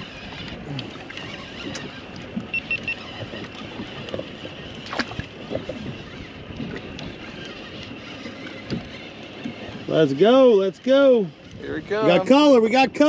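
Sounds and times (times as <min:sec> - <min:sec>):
wind on microphone: 0:00.0 - 0:07.8
water sloshing against boat hull: 0:00.0 - 0:13.0
quick high beeps: 0:02.5 - 0:03.0.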